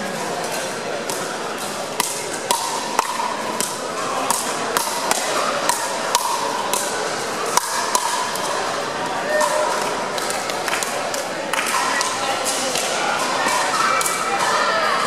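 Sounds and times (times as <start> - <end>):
paddles hitting plastic ball: 1.0 - 8.6.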